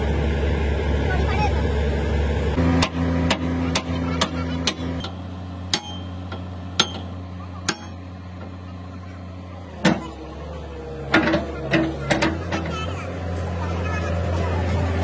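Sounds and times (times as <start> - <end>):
steady engine hum: 0.0 - 15.0
hammer striking steel: 2.8 - 8.0.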